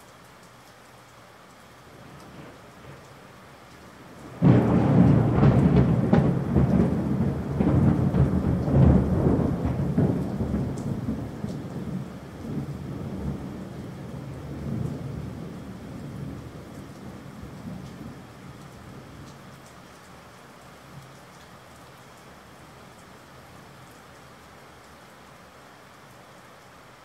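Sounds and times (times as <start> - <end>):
steady rain: 0.0 - 27.0
thunder rolling and rumbling: 4.2 - 19.3.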